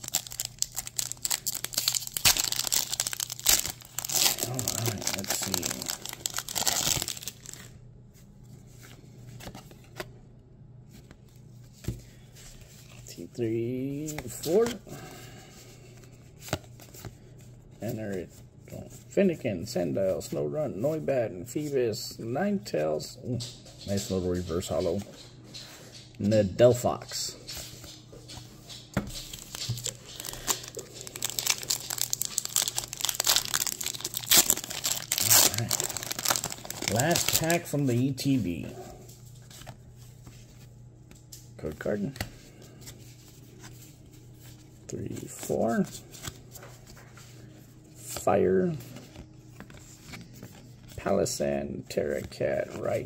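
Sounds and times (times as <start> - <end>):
foil pack ripping open: 0.0 - 7.7, 29.3 - 37.8
foil wrapper crinkling: 0.0 - 7.7, 29.1 - 38.3.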